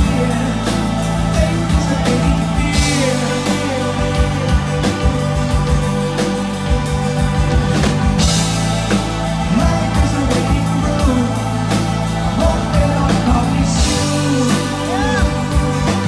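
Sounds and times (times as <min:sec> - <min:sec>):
man singing lead vocals: 0:00.0 - 0:05.6, 0:09.4 - 0:16.0
drums: 0:00.0 - 0:16.0
keyboards: 0:00.0 - 0:16.0.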